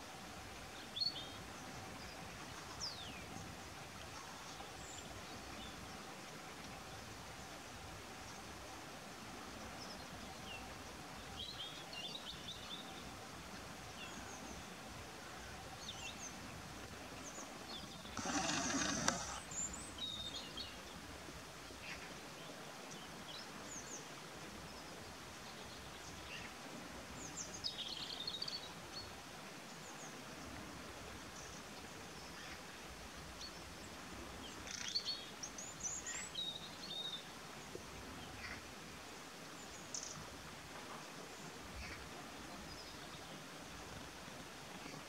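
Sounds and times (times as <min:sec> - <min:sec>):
small birds chirping: 0:17.2 - 0:20.9.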